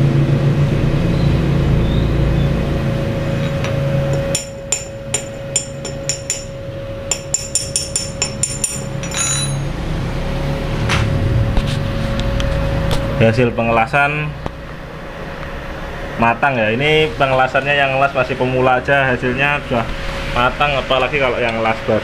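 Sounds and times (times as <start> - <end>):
steady low hum: 0.0 - 22.0
hammer tapping on metal: 3.4 - 9.7.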